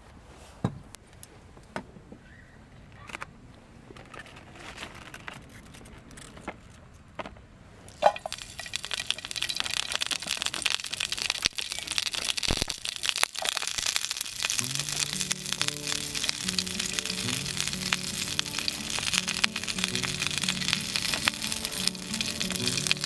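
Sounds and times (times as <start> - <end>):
vegetables hitting hot pot: 7.9 - 23.0
vegetables sizzling and crackling: 7.9 - 23.0.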